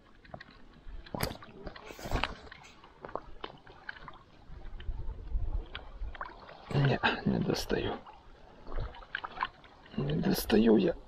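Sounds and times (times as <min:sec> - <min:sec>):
splashing in shallow water: 0:00.0 - 0:11.0.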